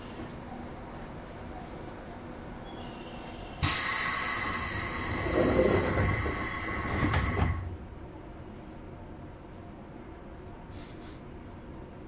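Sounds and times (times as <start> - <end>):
compressed air hissing: 3.6 - 7.6.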